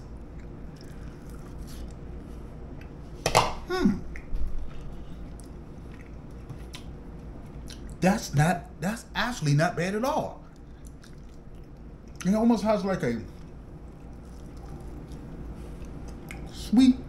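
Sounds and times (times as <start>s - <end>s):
room hum: 0.0s - 17.0s
man chewing: 0.1s - 3.2s, 4.1s - 8.0s, 10.4s - 12.3s, 13.3s - 16.6s
voiced hum falling in pitch: 3.6s - 4.2s.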